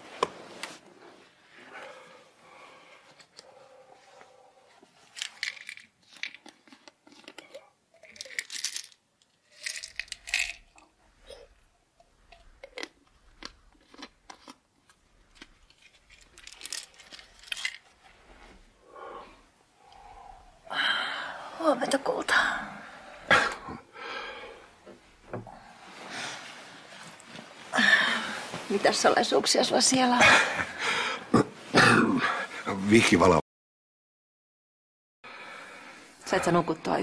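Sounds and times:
handling crinkles and clicks: 5.0s - 10.9s, 12.3s - 18.2s.

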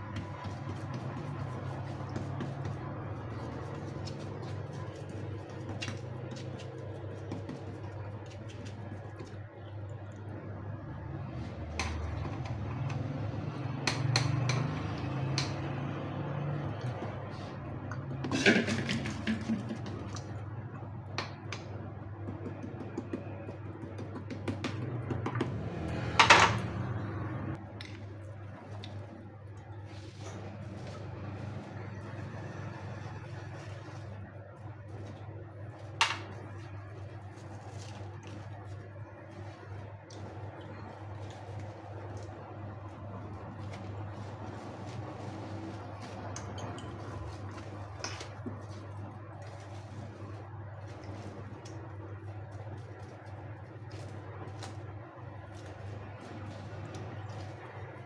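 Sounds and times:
kitchen utensils clattering: 18.3s - 19.6s.

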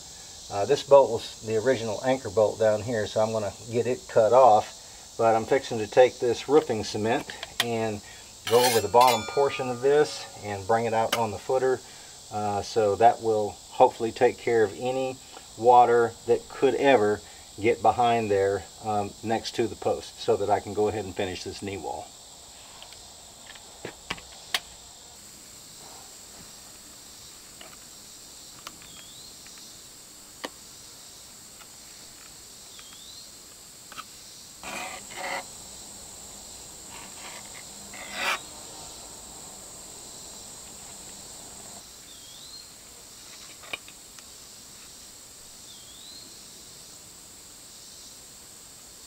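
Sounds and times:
insects buzzing: 0.0s - 49.0s
paint brush scraping: 8.5s - 10.4s.

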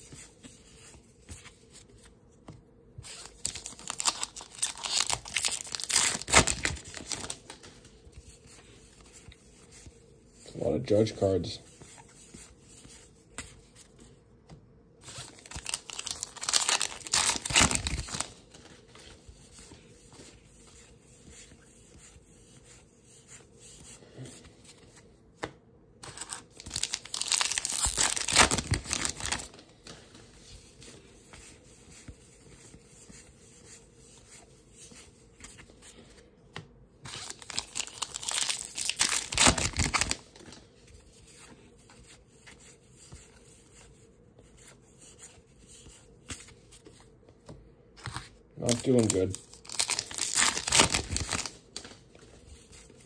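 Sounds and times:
cards rustling: 0.0s - 14.2s, 15.0s - 43.9s, 44.5s - 53.0s
wrappers ripping and crinkling: 3.1s - 7.7s, 15.0s - 18.6s, 26.0s - 29.6s, 37.1s - 40.5s, 48.6s - 51.9s.

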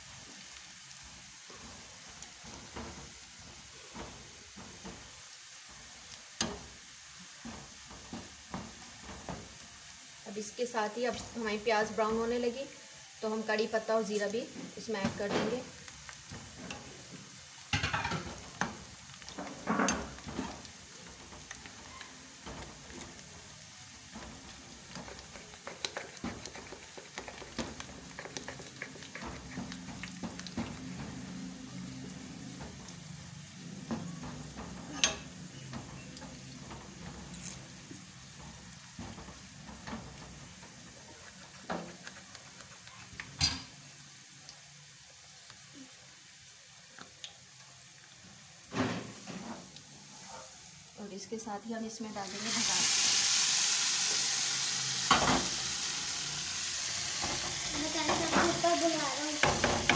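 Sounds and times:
oil sizzling with frying food: 0.0s - 59.9s
spoon stirring and scraping: 24.1s - 31.2s, 34.1s - 43.5s
spoon knocking on metal pan: 59.4s - 59.9s.

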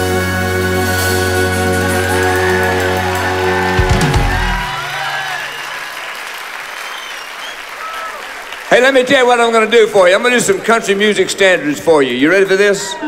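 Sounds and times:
live band with piano: 0.0s - 6.0s
audience applauding: 1.6s - 13.0s.

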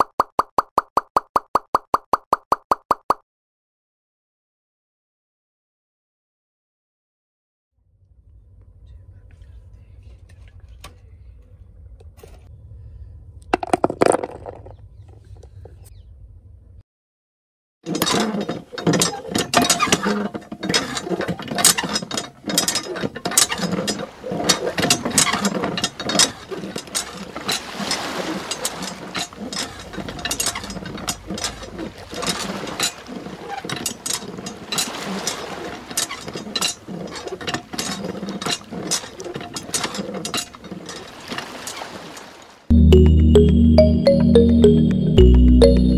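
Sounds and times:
hand pump clicks and rattles: 17.9s - 41.8s.

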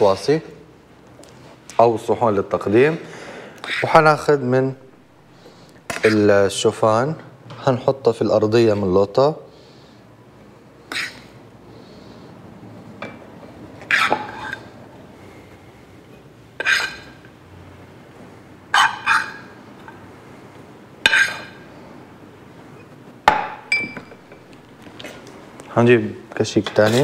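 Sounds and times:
metal spoon scraping a pan: 13.9s - 14.7s, 16.6s - 17.2s, 18.8s - 19.6s, 21.0s - 21.6s.

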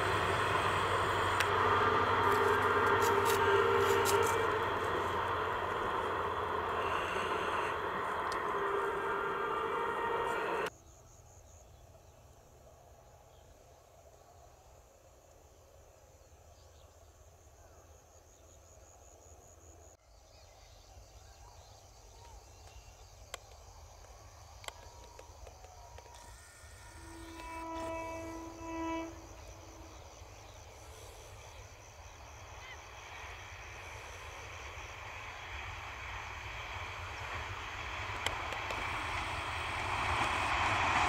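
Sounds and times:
train horn blast: 0.0s - 10.7s, 26.1s - 31.4s, 36.6s - 41.0s
train running noise: 0.0s - 10.7s, 22.2s - 41.0s.

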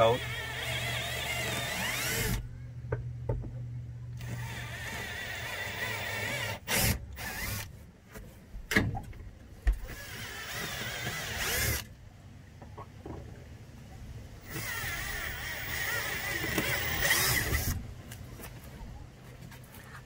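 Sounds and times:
cordless drill drilling: 0.0s - 2.4s, 4.2s - 7.7s, 9.9s - 11.8s, 14.4s - 17.8s.

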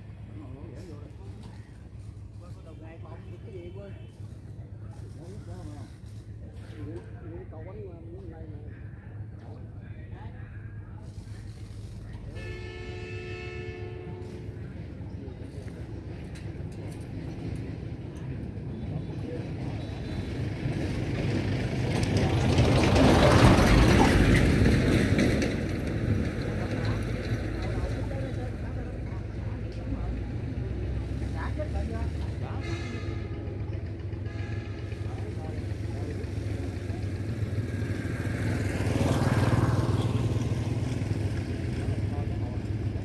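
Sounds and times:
machinery rattling and rumbling: 13.9s - 43.0s.

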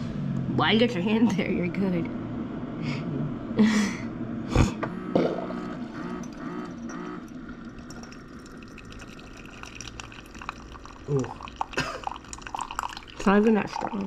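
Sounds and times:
coffee maker pump humming: 4.3s - 14.0s
liquid pouring into mug: 5.2s - 14.0s.

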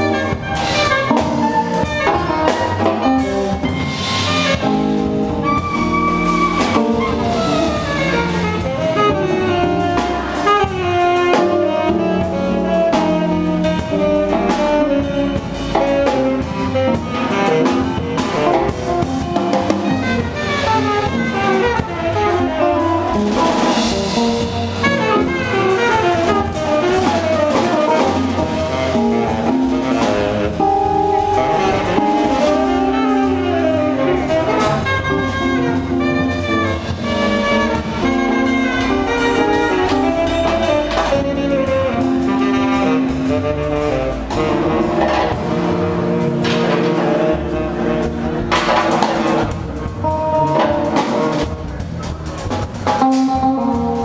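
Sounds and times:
drum kit swing rhythm: 0.0s - 54.0s
electric guitar: 0.0s - 54.0s
saxophone: 0.0s - 54.0s
upright bass: 0.0s - 54.0s.

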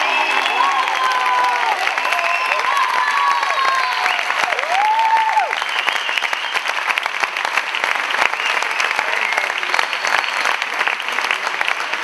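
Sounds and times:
high calls from audience: 0.0s - 5.6s
audience applauding: 0.0s - 12.0s.

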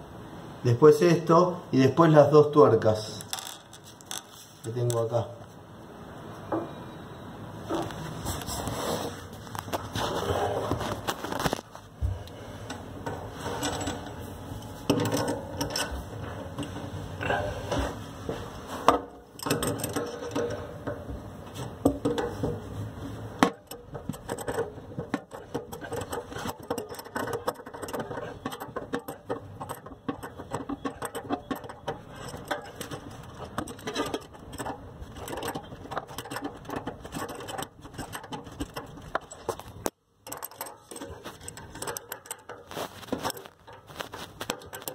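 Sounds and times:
metal nuts clicking and rattling: 3.1s - 5.0s, 13.0s - 16.0s, 19.3s - 21.1s, 23.4s - 44.9s.

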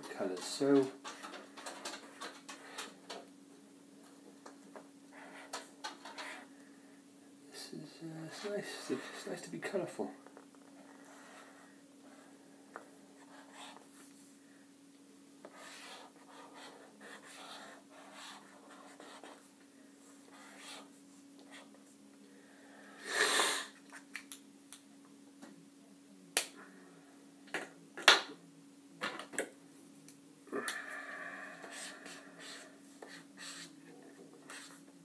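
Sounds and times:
faint steady hum: 0.0s - 35.0s
marker scratching on paper: 5.1s - 6.5s, 13.2s - 13.8s, 15.4s - 19.4s, 20.3s - 20.9s, 31.7s - 34.8s.

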